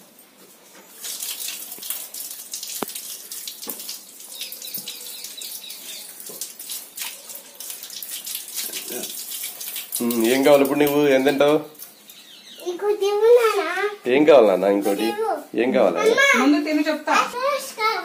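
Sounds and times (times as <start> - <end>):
hands washing under water: 0.8 - 12.2
tap water splashing into sink: 1.0 - 12.0.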